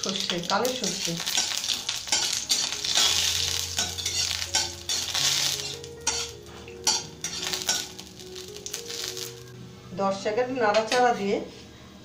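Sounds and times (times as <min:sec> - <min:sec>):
seeds sizzling in hot oil: 0:00.0 - 0:09.6
metal spatula scraping pan: 0:00.9 - 0:08.0.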